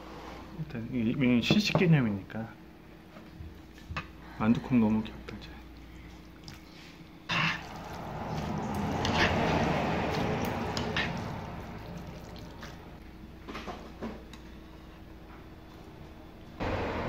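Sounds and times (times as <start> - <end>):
noodles squelching in sauce: 5.7 - 13.0.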